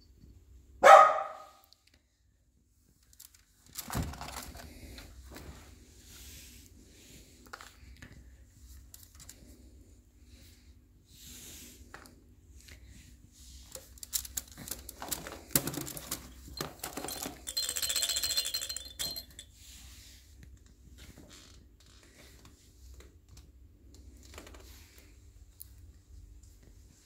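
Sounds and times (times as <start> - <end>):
dog toys rummaged in wicker basket: 3.0 - 5.7, 13.6 - 19.6
rapid high rattling: 14.0 - 19.4.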